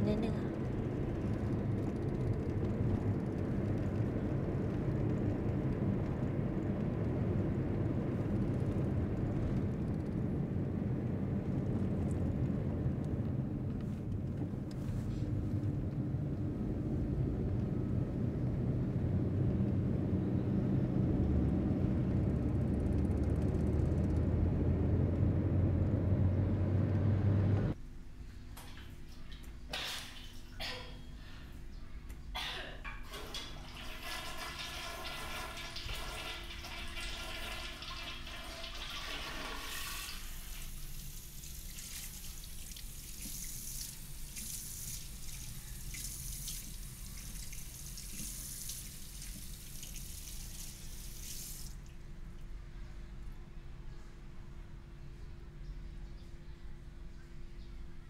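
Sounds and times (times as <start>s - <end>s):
car engine and road noise: 0.6s - 27.8s.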